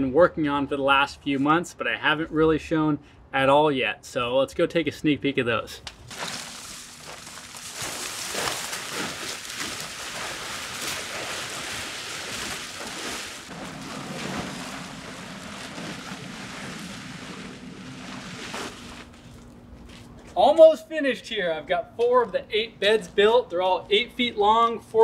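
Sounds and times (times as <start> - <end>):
plastic tarps rustling and crinkling: 6.0 - 20.2.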